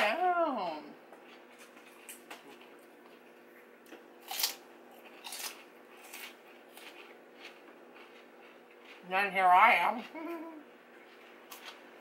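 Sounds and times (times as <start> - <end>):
chewing crisp food crunches: 1.2 - 9.1, 10.9 - 12.0.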